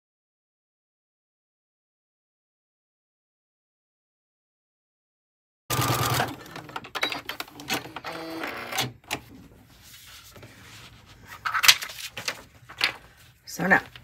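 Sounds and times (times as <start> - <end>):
sewing machine stitching: 5.7 - 9.0
handling noises: 9.0 - 14.0.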